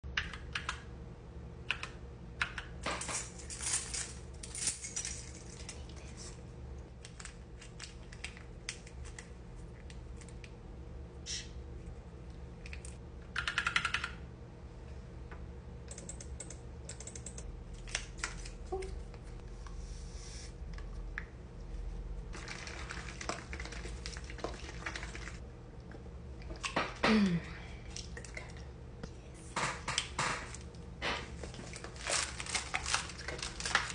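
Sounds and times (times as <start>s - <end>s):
keyboard typing: 13.3s - 14.2s, 15.9s - 17.4s.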